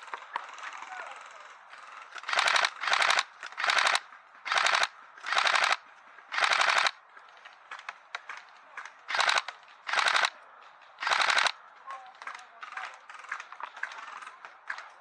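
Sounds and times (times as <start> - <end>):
airsoft guns firing bursts: 2.2 - 7.0, 9.1 - 10.4, 11.0 - 11.6.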